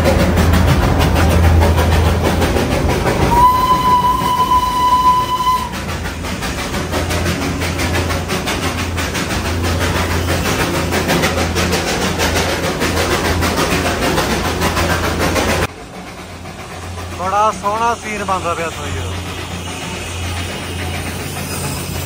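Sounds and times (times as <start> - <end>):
rumble and clatter of moving train: 0.0 - 22.0
steam locomotive whistle: 3.2 - 5.9.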